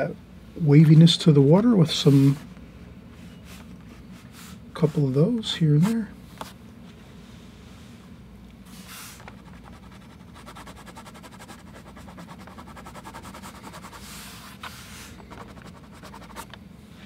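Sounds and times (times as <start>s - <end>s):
low steady hum: 0.0s - 17.0s
marker scribbling on paper: 9.3s - 16.5s.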